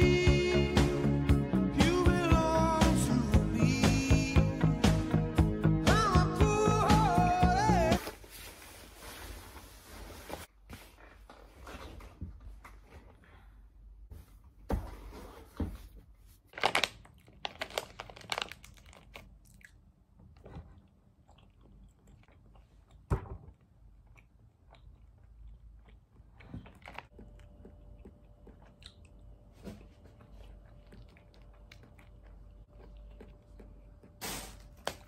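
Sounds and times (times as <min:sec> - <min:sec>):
plastic wrapper crinkling: 0:16.4 - 0:19.4
crunching and chewing candy: 0:16.4 - 0:35.0.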